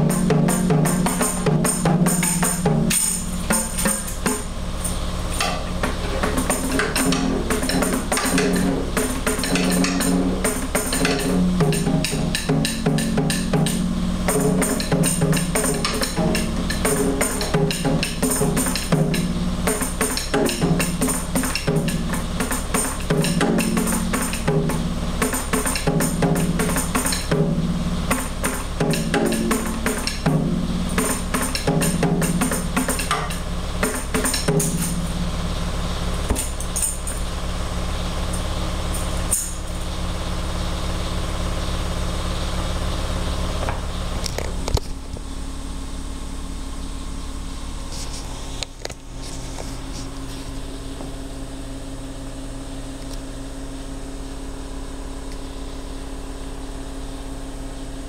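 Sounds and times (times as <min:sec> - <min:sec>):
fast drumming with jingly hits: 0:00.0 - 0:35.4
steady low hum: 0:00.0 - 0:58.0.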